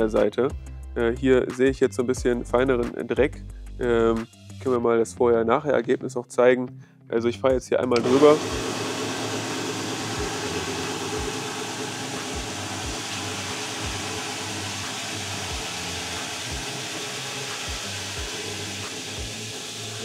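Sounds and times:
floor sweeper whirring: 0:08.0 - 0:20.0.

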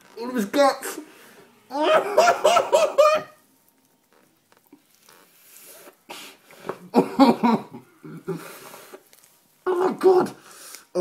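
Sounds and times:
person laughing: 0:01.7 - 0:03.4, 0:06.9 - 0:08.5
person's voice: 0:09.6 - 0:10.4.

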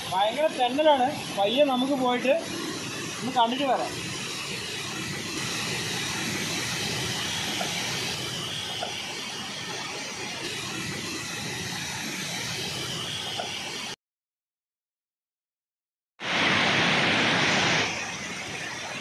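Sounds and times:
stream rushing over rocks: 0:03.1 - 0:09.2.

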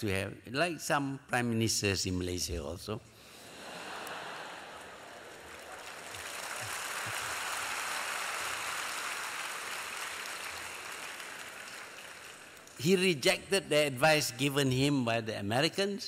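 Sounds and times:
audience laughing: 0:03.4 - 0:07.4
audience applauding: 0:04.0 - 0:12.8.

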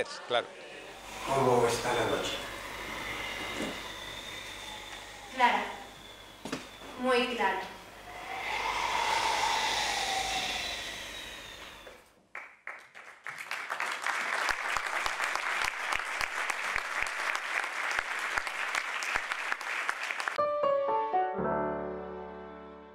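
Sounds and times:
audience applauding: 0:11.6 - 0:20.4
music: 0:20.4 - 0:22.9
piano notes: 0:20.4 - 0:22.9.

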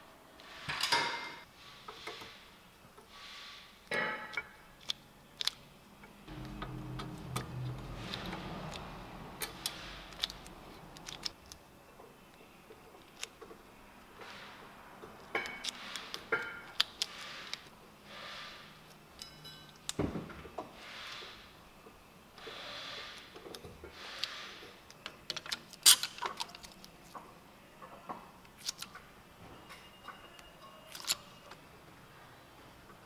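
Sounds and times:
low hum: 0:06.2 - 0:11.3.

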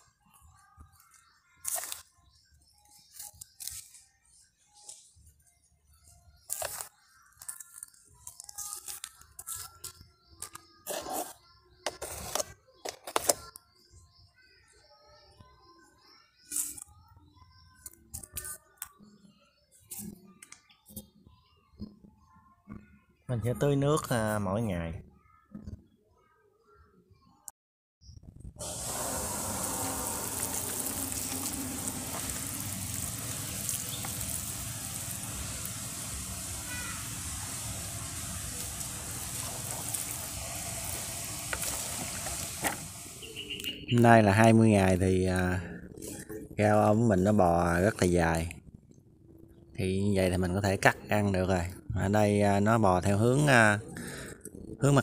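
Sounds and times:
soil and mulch crunching: 0:28.6 - 0:44.0.

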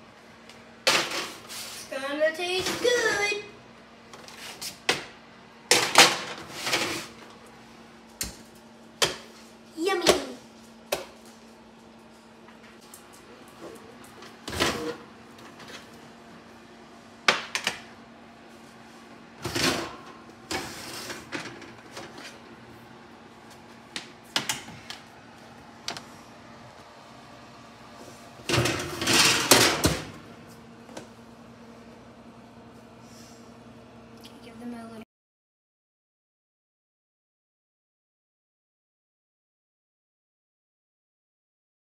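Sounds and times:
steady low hum: 0:00.0 - 0:35.0
oven rack rattling clatter: 0:28.5 - 0:30.1.

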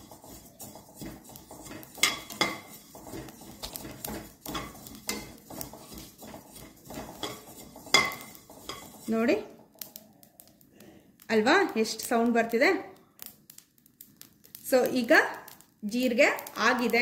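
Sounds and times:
metal spatula scraping a pan: 0:00.0 - 0:09.9
seeds rustling and crackling: 0:00.0 - 0:17.0.

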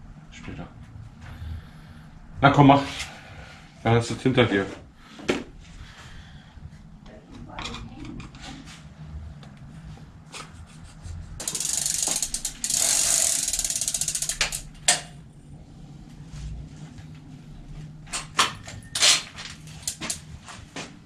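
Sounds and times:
bicycle freewheel ticking: 0:11.4 - 0:15.1, 0:19.7 - 0:20.2.

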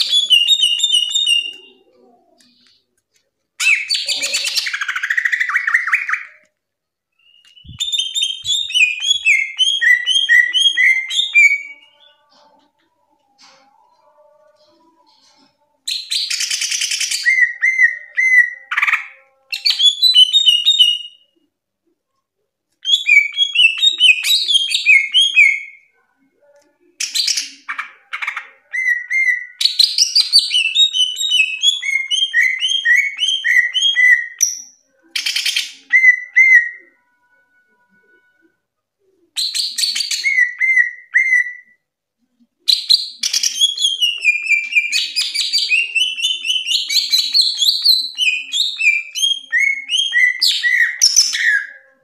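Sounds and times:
bird whistling and trilling: 0:00.0 - 0:01.8, 0:07.2 - 0:12.1, 0:42.7 - 0:51.8.

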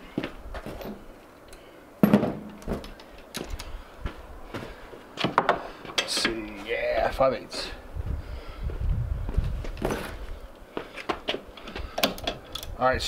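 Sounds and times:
footsteps: 0:02.1 - 0:06.7, 0:08.0 - 0:11.9.

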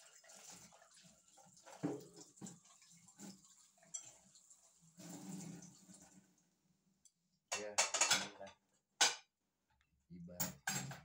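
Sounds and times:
water splashing and trickling: 0:00.0 - 0:06.6
dishes knocking and clinking: 0:07.5 - 0:09.3, 0:10.4 - 0:11.0.

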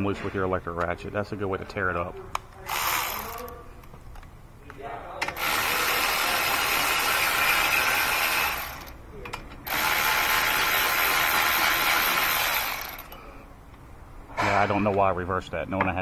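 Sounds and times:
electric ratchet spinning bolts: 0:02.7 - 0:03.6, 0:05.4 - 0:09.0, 0:09.6 - 0:13.2.

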